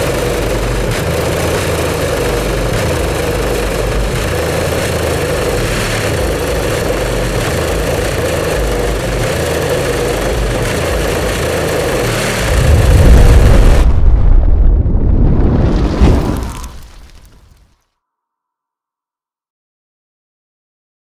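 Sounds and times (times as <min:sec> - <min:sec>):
heavy bass from subwoofers: 0:10.2 - 0:14.2.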